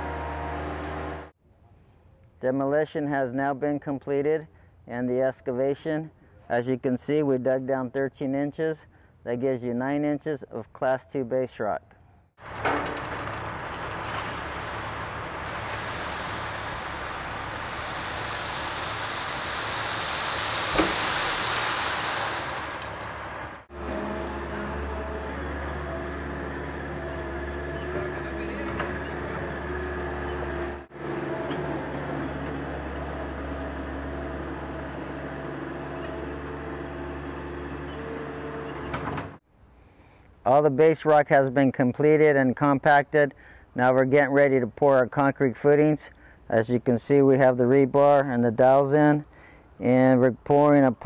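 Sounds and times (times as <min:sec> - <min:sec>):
gravel pouring from truck bed: 0:12.4 - 0:23.7
truck engine humming: 0:12.4 - 0:38.6
short high squeak: 0:15.1 - 0:16.3, 0:16.9 - 0:17.5.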